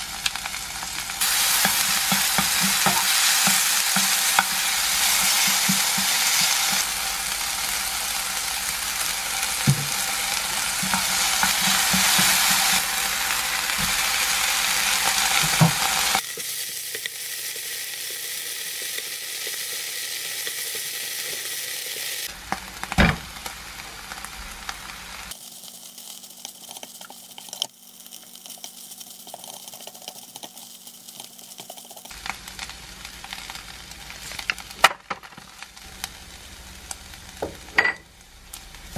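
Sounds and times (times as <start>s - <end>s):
food sizzling in a frying pan: 0.0s - 38.9s
spatula tapping a pan: 1.5s - 6.8s, 9.6s - 10.1s, 10.7s - 12.8s.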